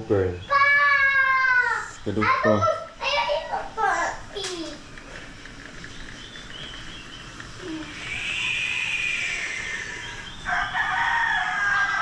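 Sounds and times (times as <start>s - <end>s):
drawn-out animal call: 6.2s - 12.0s.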